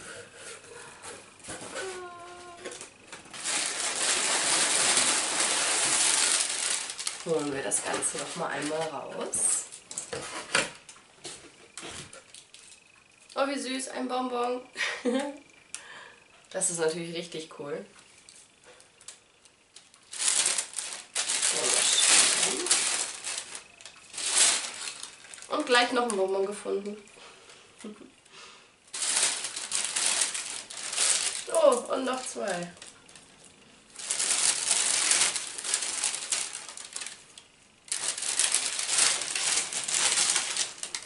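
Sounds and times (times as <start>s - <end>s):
plastic bag crinkling: 1.4s - 10.0s, 19.8s - 26.8s, 28.9s - 33.3s, 33.9s - 41.0s.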